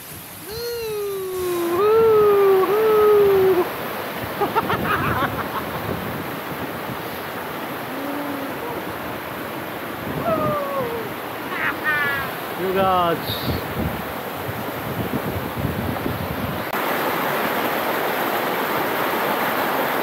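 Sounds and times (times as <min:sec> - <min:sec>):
rushing water of stream: 0:00.0 - 0:20.0
wavering voice-like tone: 0:07.8 - 0:09.0, 0:10.2 - 0:11.1.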